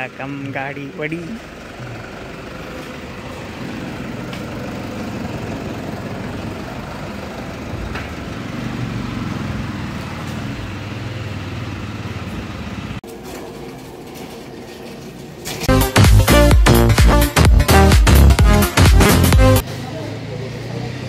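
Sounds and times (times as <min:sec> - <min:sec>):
car engine idling: 0:00.0 - 0:09.7.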